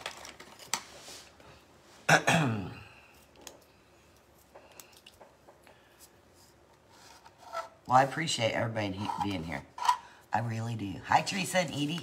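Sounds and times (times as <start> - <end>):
person clearing throat: 2.1 - 3.0.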